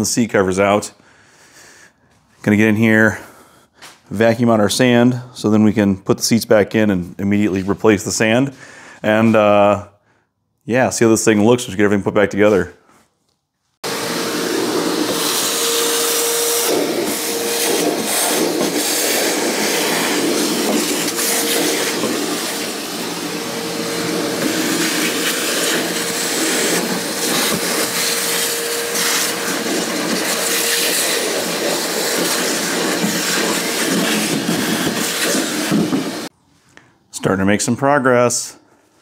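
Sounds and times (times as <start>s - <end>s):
shop vacuum running: 13.8s - 36.3s.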